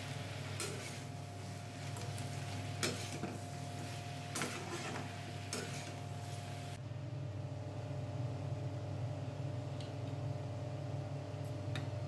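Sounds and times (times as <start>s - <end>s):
spatula stirring vegetables in pan: 0.0s - 6.8s
steady low hum: 0.0s - 12.0s.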